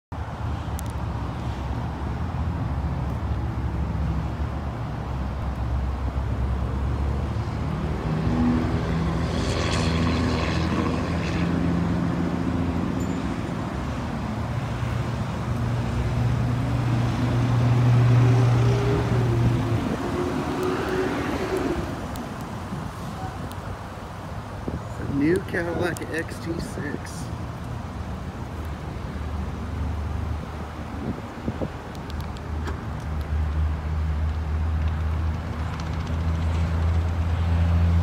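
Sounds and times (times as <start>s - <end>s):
low engine hum: 0.2s - 38.0s.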